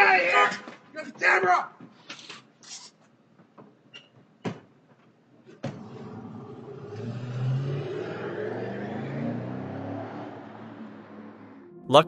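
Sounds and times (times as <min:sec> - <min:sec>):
car engine revving and accelerating: 0:05.7 - 0:11.8.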